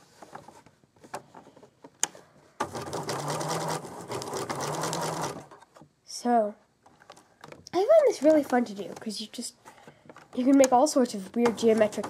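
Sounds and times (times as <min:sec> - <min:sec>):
sewing machine stitching: 0:02.6 - 0:05.6.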